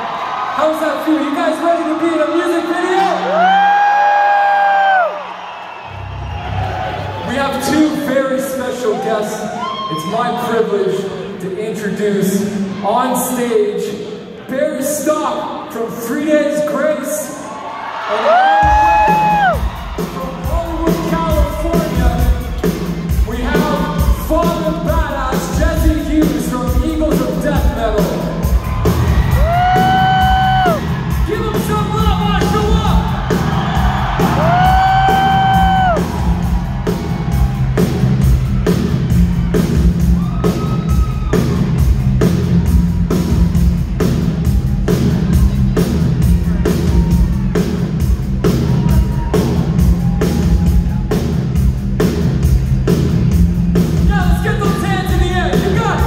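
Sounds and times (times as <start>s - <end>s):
live rock band playing: 18.6s - 56.0s.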